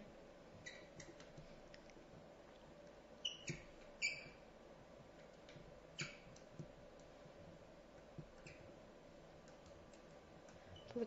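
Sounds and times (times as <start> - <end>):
steady faint hum: 0.0 - 11.0
faint clicks and squeaks: 0.6 - 4.4, 5.2 - 7.2, 8.0 - 8.8, 9.4 - 11.0.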